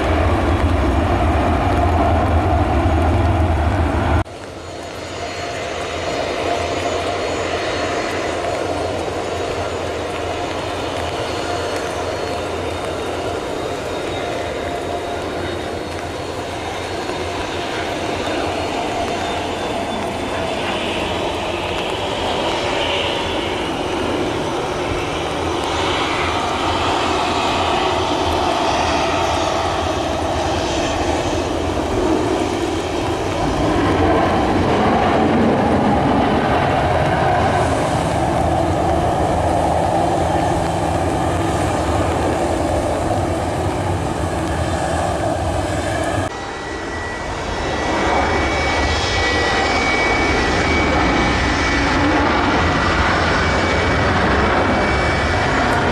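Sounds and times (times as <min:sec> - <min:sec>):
jet engines high whine: 0:00.0 - 0:55.9
jet engines roaring: 0:00.0 - 0:55.9.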